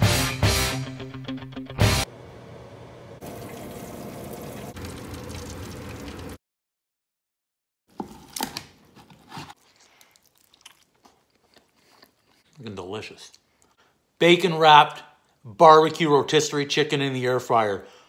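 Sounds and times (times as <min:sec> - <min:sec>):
biting and chewing: 0:07.9 - 0:13.8.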